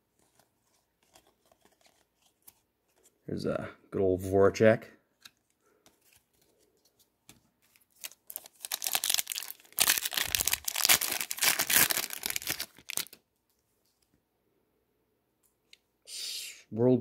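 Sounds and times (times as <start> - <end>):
card pack wrapper tearing and crinkling: 0.2 - 3.0, 7.6 - 13.2.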